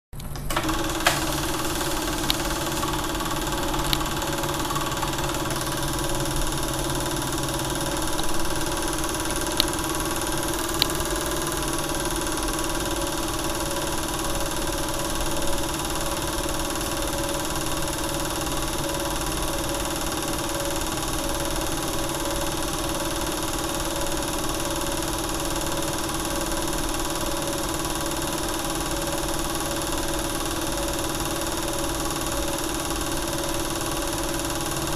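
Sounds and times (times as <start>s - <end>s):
projector clicks: 0.2s - 19.0s
film projector whirring: 0.2s - 34.9s.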